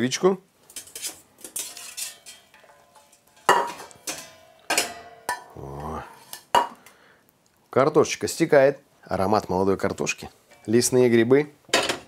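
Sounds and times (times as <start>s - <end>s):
metal basket clanking on pot: 0.7s - 5.5s.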